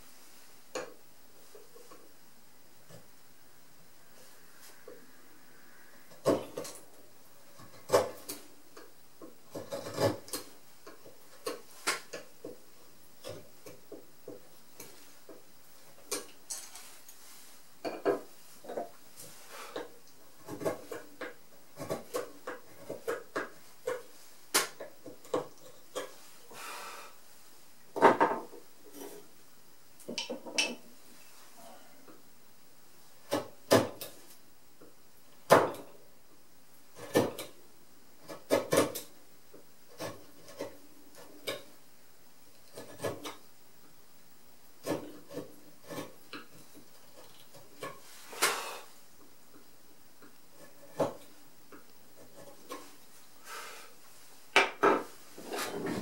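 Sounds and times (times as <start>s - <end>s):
chisel cutting wood: 9.5s - 11.6s, 20.4s - 21.2s, 38.3s - 39.1s, 42.6s - 43.4s.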